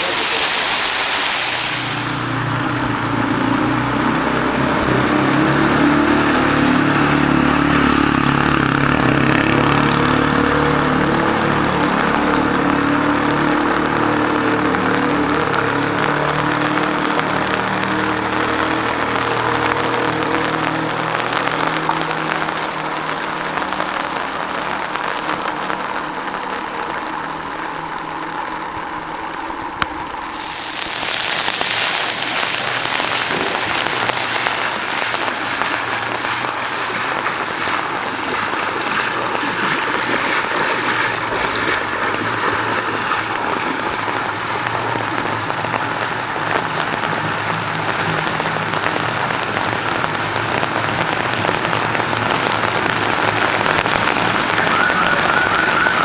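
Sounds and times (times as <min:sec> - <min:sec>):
water splashing: 0:00.0 - 0:02.6, 0:03.9 - 0:56.0
heavy rain pouring: 0:00.0 - 0:56.0.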